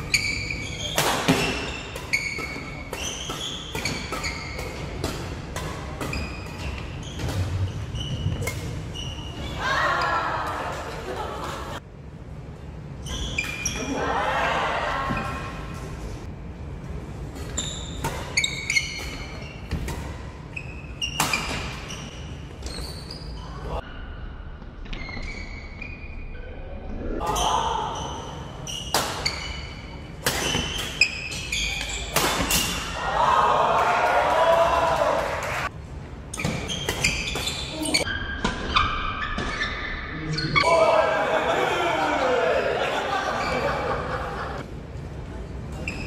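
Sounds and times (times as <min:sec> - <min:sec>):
shoes squeaking on gym floor: 0:00.0 - 0:05.0, 0:06.1 - 0:09.6, 0:17.4 - 0:19.8, 0:20.5 - 0:23.7, 0:24.9 - 0:26.2, 0:28.0 - 0:32.6, 0:36.4 - 0:40.6, 0:45.8 - 0:46.0.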